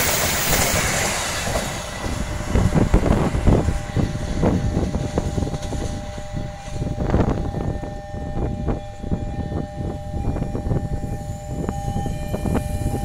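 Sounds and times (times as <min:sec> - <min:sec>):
train wheels clattering over rail joints: 0:00.0 - 0:06.0
two-tone crossing warning siren: 0:01.7 - 0:13.0.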